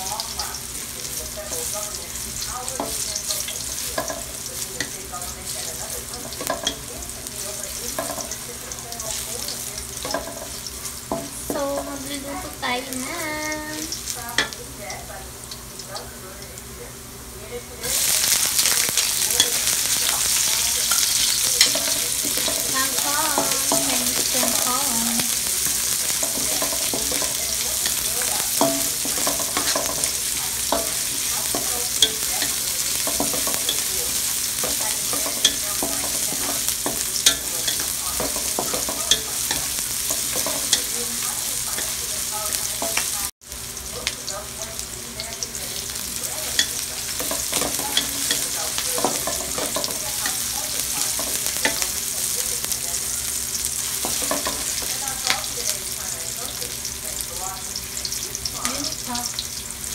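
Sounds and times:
garlic and onion sizzling in oil: 0.0s - 59.9s.

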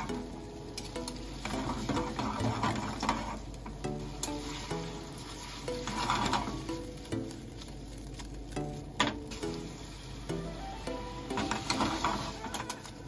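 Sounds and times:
background music: 0.0s - 13.0s
tongs scraping frying pan: 0.8s - 7.3s, 11.2s - 12.9s.

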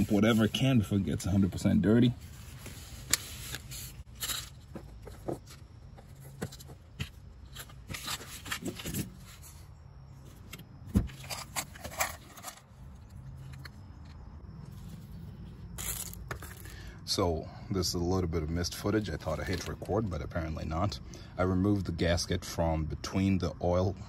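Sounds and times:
rustling and scraping: 0.0s - 16.8s.

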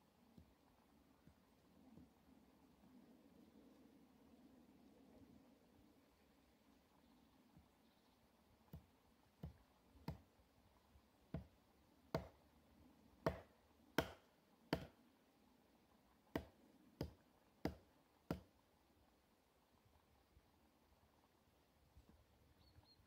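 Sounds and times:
hatchet chopping wood: 8.7s - 10.3s, 11.3s - 12.4s, 13.2s - 15.0s, 16.3s - 18.5s.

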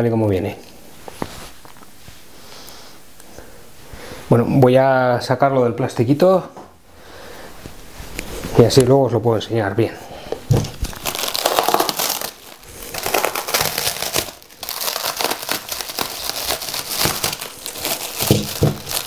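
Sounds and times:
plastic wrap crinkling: 10.3s - 19.0s.

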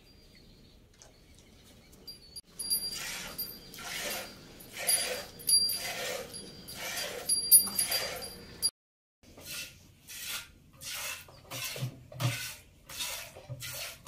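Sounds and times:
cow tongue rasping: 2.6s - 8.4s.

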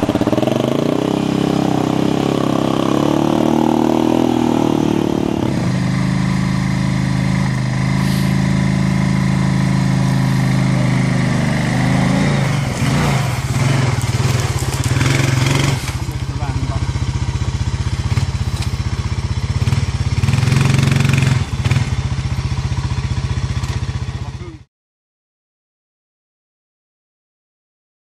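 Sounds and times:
atv engine running under load: 0.0s - 24.7s
rattling clatter: 12.8s - 16.8s.

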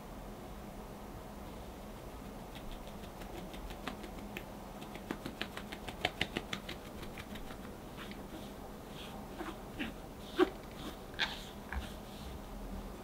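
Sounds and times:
sieve tapping light rapid ticks: 2.2s - 8.2s.

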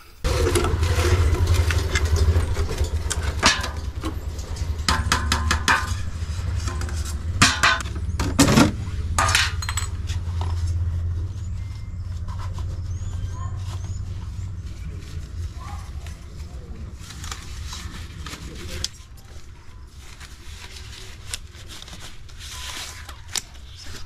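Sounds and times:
steady low rumble: 0.2s - 19.0s.

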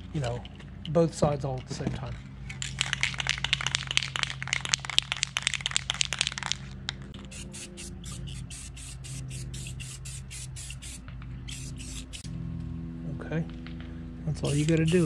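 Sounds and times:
spray can rattling: 2.5s - 12.2s, 14.5s - 15.0s.

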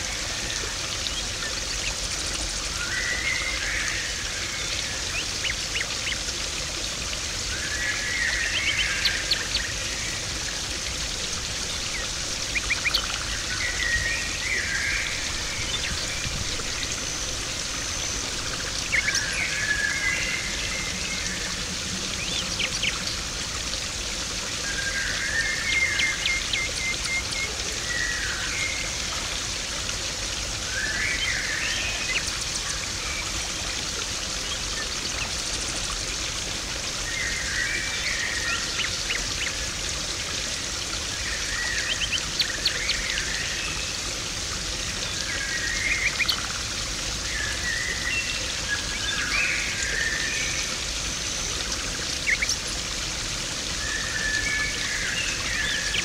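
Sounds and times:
pond water trickling: 0.0s - 56.0s.

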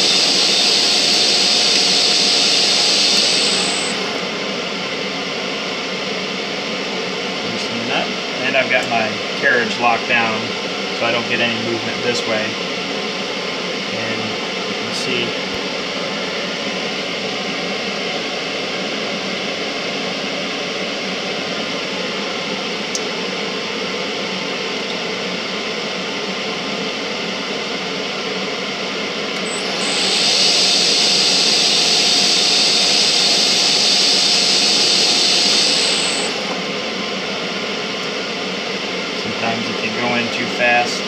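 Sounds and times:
lathe whining: 0.0s - 5.0s, 29.3s - 41.0s
fan-like hum: 0.0s - 41.0s.

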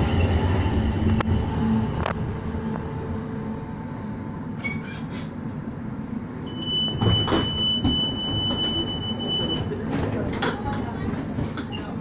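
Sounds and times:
tram humming: 0.0s - 12.0s
high-pitched door warning tone: 6.5s - 9.7s.

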